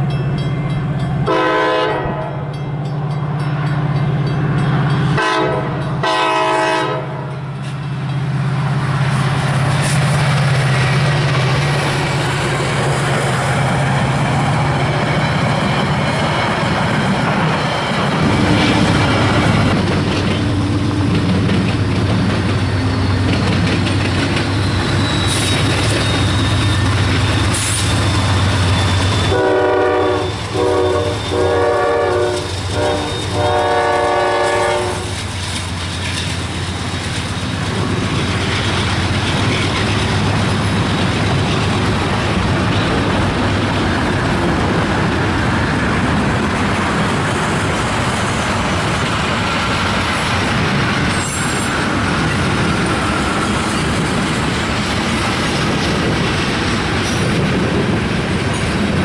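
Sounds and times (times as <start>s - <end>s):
diesel locomotive engines rumbling: 0.0s - 59.0s
train horn: 1.2s - 2.5s, 5.1s - 7.5s, 29.2s - 35.2s.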